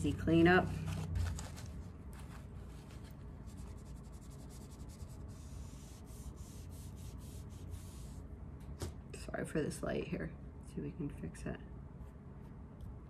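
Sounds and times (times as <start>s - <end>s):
paper towel scuffing surface: 0.0s - 8.2s
low steady hum: 0.0s - 13.0s.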